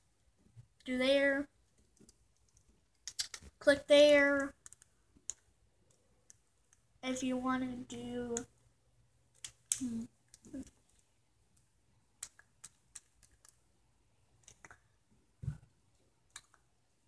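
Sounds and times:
faint clicks and taps: 1.6 - 6.9, 9.3 - 13.7, 14.4 - 16.8.

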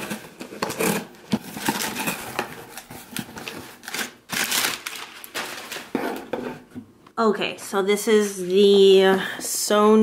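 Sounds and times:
packing paper rustling: 0.0 - 6.4.

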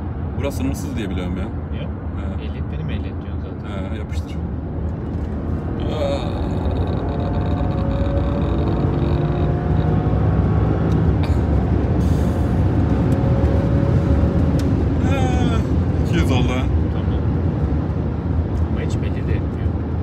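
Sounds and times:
car engine drone: 0.0 - 20.0
road and wind noise: 0.0 - 20.0.

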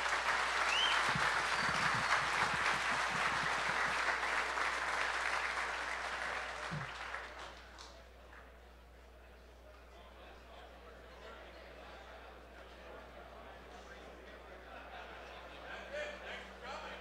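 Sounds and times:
audience applauding: 0.0 - 8.0.

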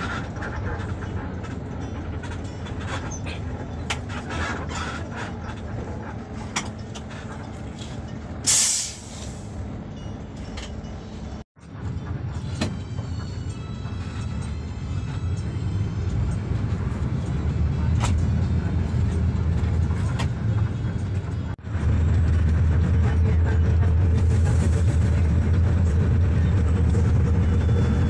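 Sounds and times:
bus diesel engine running: 0.0 - 28.0
air brake hiss: 8.4 - 9.6.

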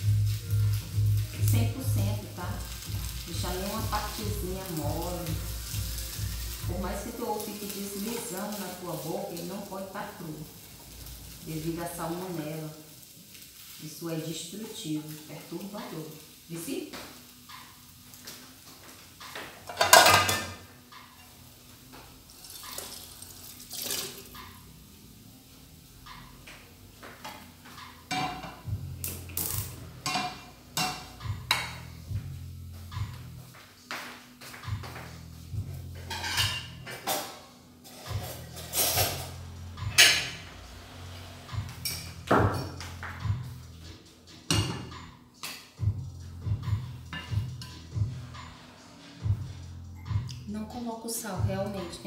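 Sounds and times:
dishes and utensils knocking: 19.2 - 21.3, 27.2 - 28.7, 44.4 - 45.9
plate and utensils clattering: 19.2 - 21.4, 36.0 - 40.4.

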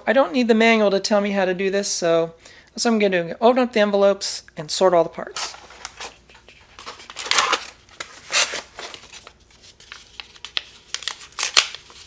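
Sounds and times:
paper envelopes rustling: 5.4 - 12.0.

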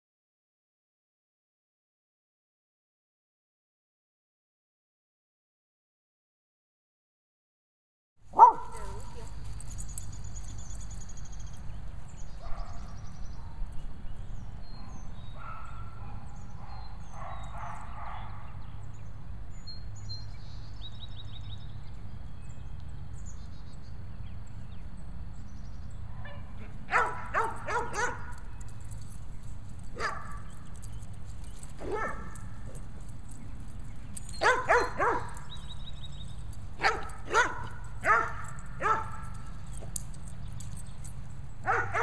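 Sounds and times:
birds chirping: 8.3 - 42.0
dog barking: 8.4 - 9.3, 12.4 - 13.6, 15.4 - 18.3, 26.2 - 28.3, 30.0 - 30.5, 31.8 - 32.4, 34.4 - 35.4, 36.8 - 39.3, 41.6 - 42.0.

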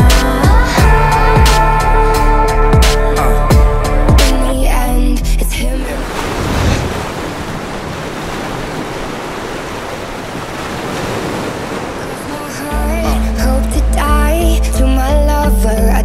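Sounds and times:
ocean waves breaking: 5.7 - 15.0.

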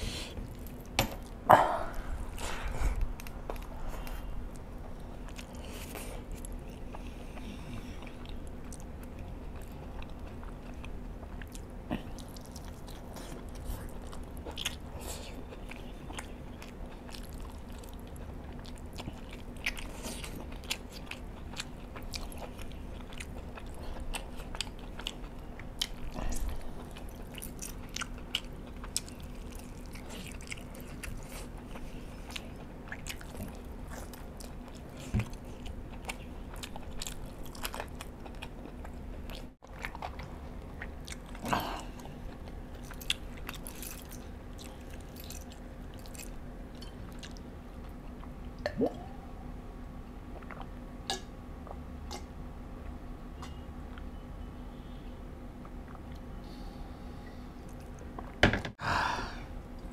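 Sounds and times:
chewing and biting: 5.2 - 46.4.

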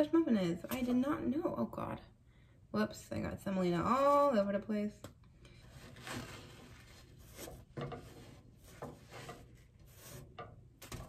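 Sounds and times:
plastic spatula scraping a skillet: 5.5 - 11.0.

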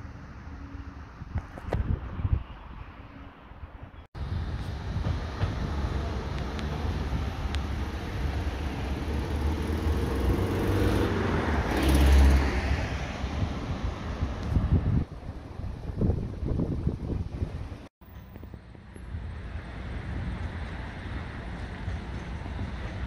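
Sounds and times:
road traffic: 0.0 - 23.0
vehicle passing: 5.2 - 14.8.

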